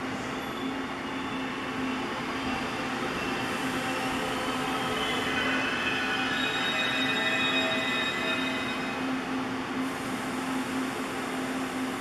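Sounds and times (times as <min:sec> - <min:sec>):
diesel locomotive engine drone: 0:00.0 - 0:12.0
high wheel squeal: 0:00.3 - 0:09.0.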